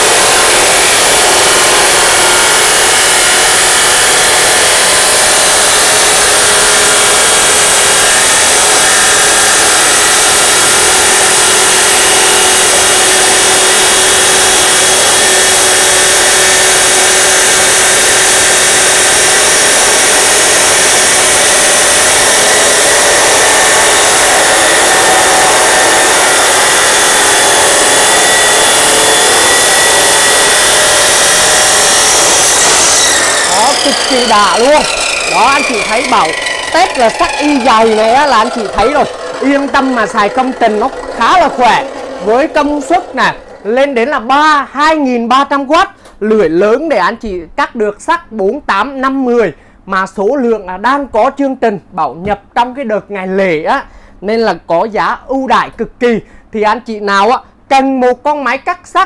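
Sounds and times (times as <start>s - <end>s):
cut-off saw grinding steel: 0.0s - 44.6s.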